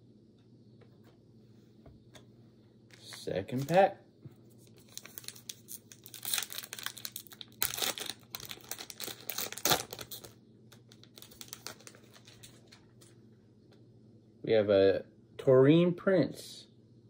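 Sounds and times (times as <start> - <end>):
foil wrapper crinkling: 4.6 - 12.9.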